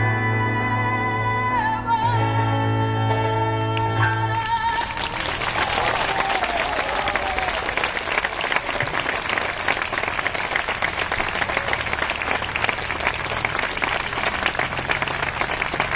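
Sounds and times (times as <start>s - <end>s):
audience applauding: 4.3s - 15.9s.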